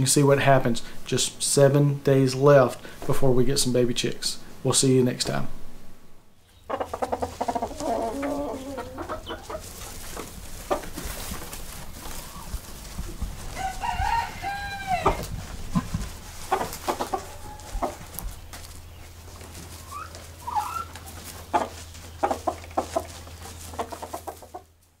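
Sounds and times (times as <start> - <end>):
chickens clucking: 6.4 - 24.8
rooster crowing: 13.5 - 15.3, 17.1 - 18.1.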